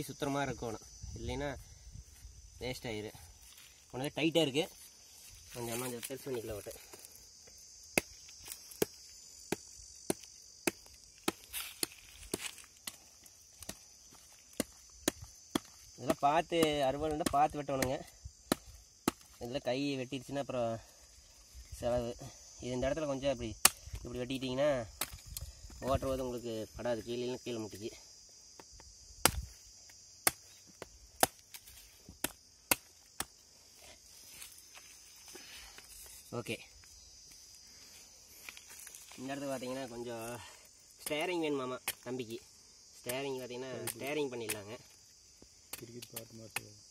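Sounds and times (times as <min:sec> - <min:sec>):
knife chopping palm stalk: 0:07.9 - 0:13.0, 0:14.5 - 0:19.4, 0:23.6 - 0:24.0, 0:25.0 - 0:25.2, 0:29.2 - 0:29.5, 0:30.2 - 0:33.4.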